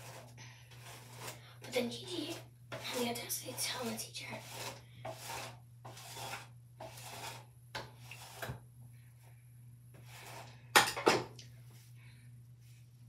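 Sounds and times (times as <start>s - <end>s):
hairbrush rasping through hair: 0.0s - 7.4s.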